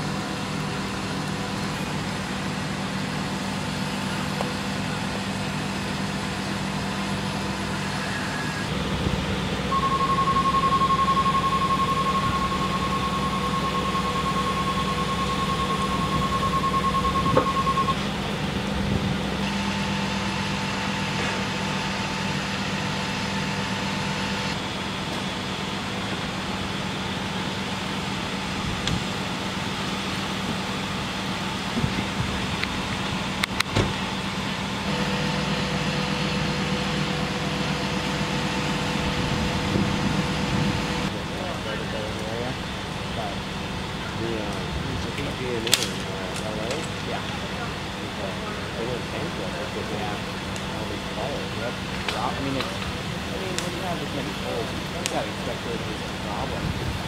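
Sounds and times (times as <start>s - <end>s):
vehicle engine idling: 0.0s - 57.0s
high-pitched tone: 7.4s - 21.0s.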